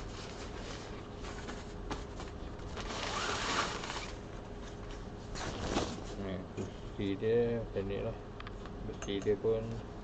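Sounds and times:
fabric bag rustling: 0:02.7 - 0:04.2.

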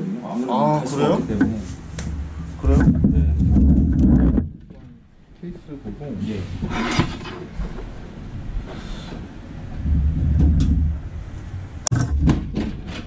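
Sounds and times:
low rumble: 0:01.1 - 0:05.3, 0:07.4 - 0:12.6
computer case clicks and knocks: 0:11.9 - 0:13.0.

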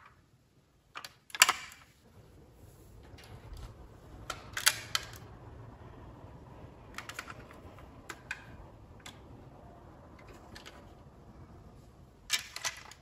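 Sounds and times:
metal model car clicking: 0:00.9 - 0:01.9, 0:04.2 - 0:05.3, 0:06.9 - 0:09.4, 0:12.3 - 0:13.0.

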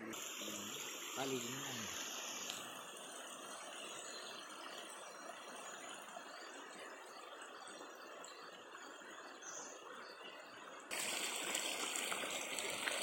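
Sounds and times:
stream flowing over stones: 0:00.0 - 0:13.0.

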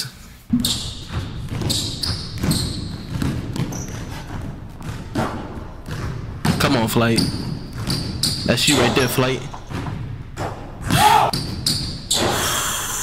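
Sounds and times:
basketball bouncing on hardwood: 0:00.5 - 0:12.1.

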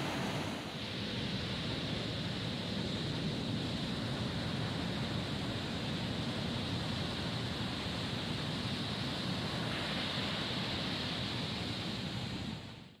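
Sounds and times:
ocean surf breaking: 0:00.0 - 0:01.2.

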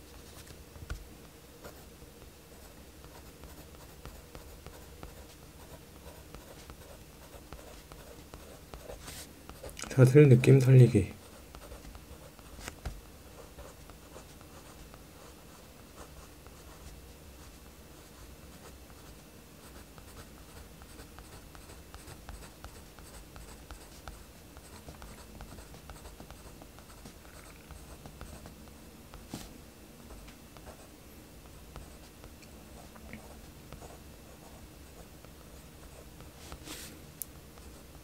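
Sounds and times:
pencil scratching on paper: 0:03.0 - 0:09.8, 0:11.2 - 0:12.7, 0:13.3 - 0:15.4, 0:19.7 - 0:28.6.

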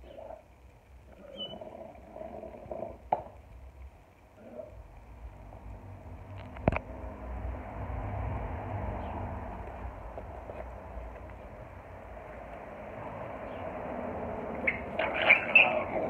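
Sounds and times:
dogs growling: 0:01.1 - 0:03.2, 0:04.4 - 0:04.8, 0:14.0 - 0:16.0.

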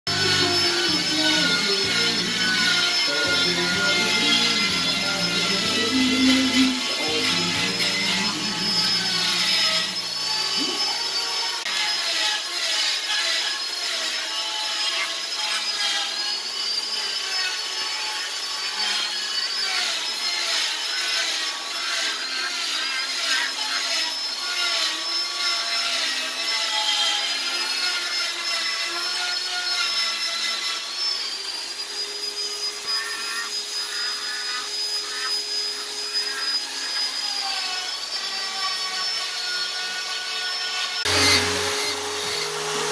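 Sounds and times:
music: 0:00.1 - 0:09.9
burr grinding wood: 0:00.1 - 0:42.9
rotary carving tool whining: 0:00.1 - 0:42.9.

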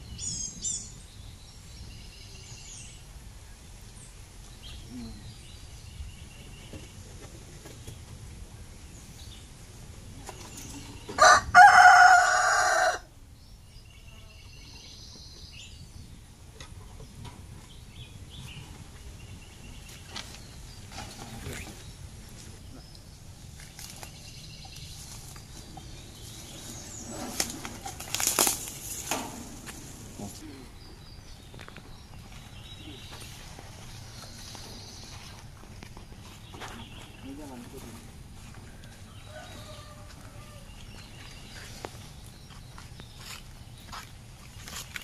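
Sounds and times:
small birds chirping: 0:00.0 - 0:12.4, 0:13.2 - 0:45.0
rooster crowing: 0:11.2 - 0:13.1, 0:39.0 - 0:40.8.

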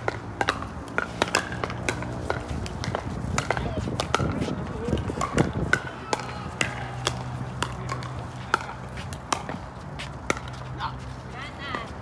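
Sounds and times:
paddles hitting plastic ball: 0:00.0 - 0:09.6.

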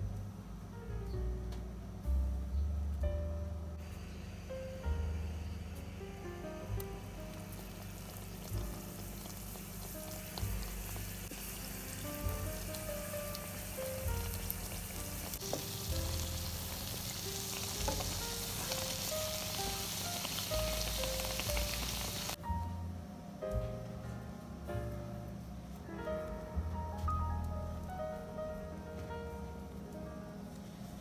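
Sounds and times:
dough sizzling in hot oil: 0:03.9 - 0:22.4.

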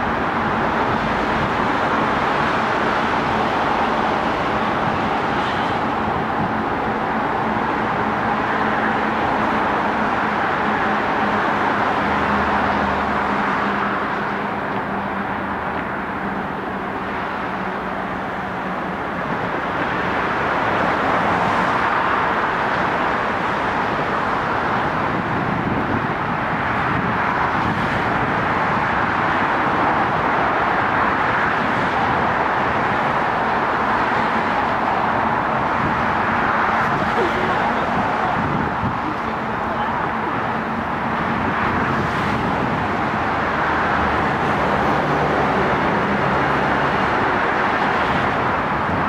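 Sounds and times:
city traffic: 0:00.0 - 0:49.0
distant electric trains on bridge: 0:00.0 - 0:49.0.

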